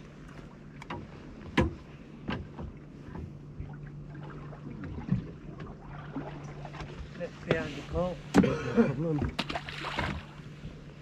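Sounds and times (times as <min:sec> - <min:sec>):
boat engine humming: 0:00.0 - 0:11.0
knocks on boat: 0:00.9 - 0:03.4, 0:08.3 - 0:10.3.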